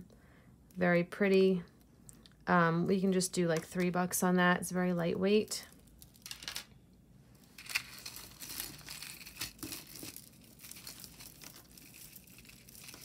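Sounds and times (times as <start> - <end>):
jewelry bag rustling: 7.4 - 13.0.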